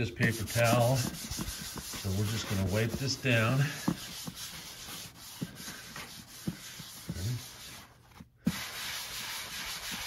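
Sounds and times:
paper towel rubbing plastic cover: 0.0s - 10.0s.

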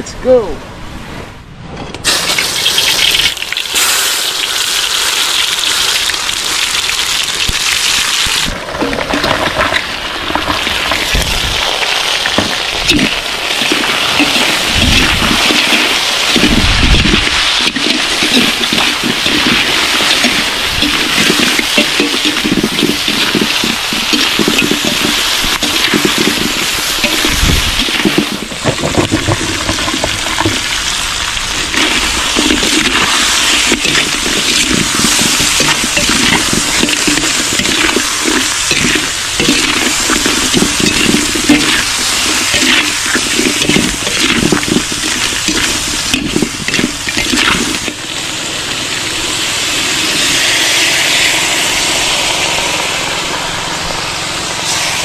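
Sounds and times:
crabs sizzling in a wok: 2.0s - 53.2s, 53.8s - 55.0s
liquid pouring into a wok: 2.1s - 52.3s
metal spatula scraping a pan: 12.9s - 30.6s, 31.6s - 48.0s.

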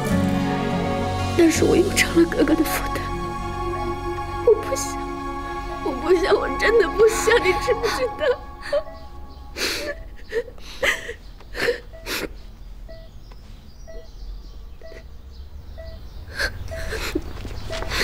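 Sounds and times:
woman sobbing: 4.4s - 12.3s, 16.3s - 17.2s.

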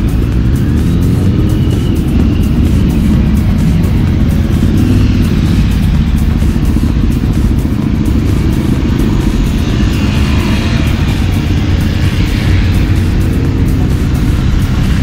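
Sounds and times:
motorcycles riding past: 0.0s - 15.0s.

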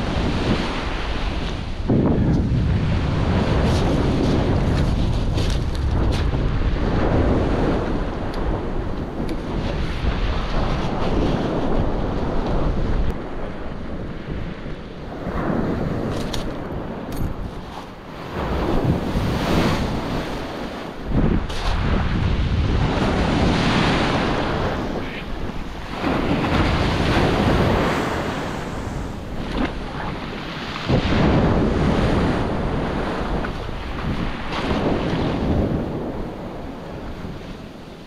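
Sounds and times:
surf washing over pebbles: 0.0s - 38.0s
wind buffeting microphone: 0.0s - 38.0s.

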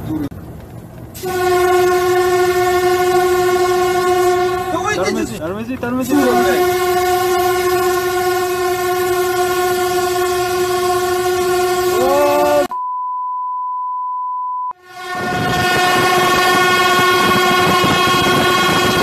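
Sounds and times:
train rumbling: 0.0s - 12.7s, 14.7s - 19.0s
train horn blast: 1.2s - 5.4s, 6.0s - 12.7s, 14.7s - 19.0s
censor bleep: 12.7s - 14.8s.

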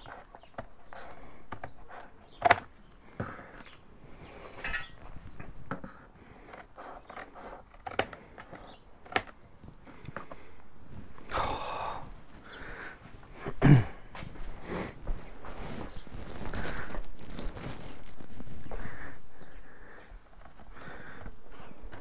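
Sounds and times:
scissors cutting cardboard: 0.0s - 2.8s, 6.4s - 9.4s
cardboard rustling: 15.0s - 19.0s.

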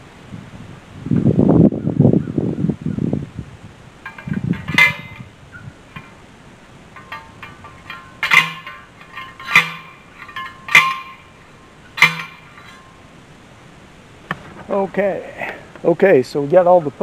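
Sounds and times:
post driver clanking on metal: 4.0s - 6.2s, 6.9s - 13.0s.

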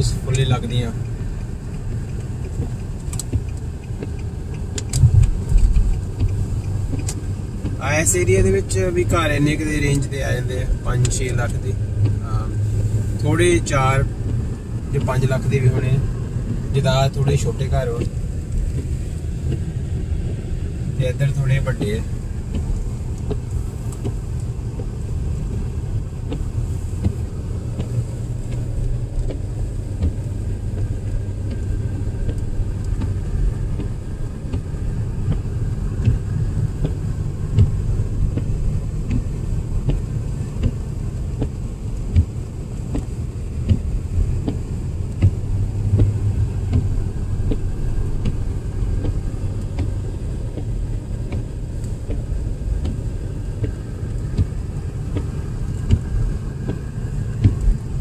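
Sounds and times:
car road and engine rumble: 0.0s - 58.0s
small clicks and knocks: 0.3s - 7.8s.

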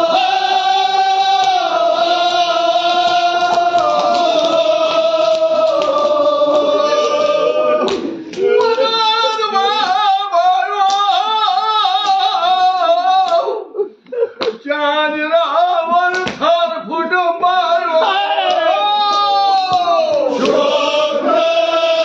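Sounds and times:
person chanting an elegy: 0.0s - 13.5s.

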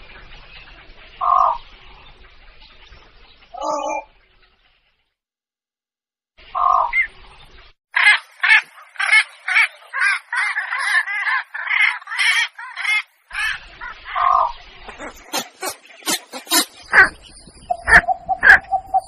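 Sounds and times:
heron hoarse squawks: 8.0s - 19.0s.

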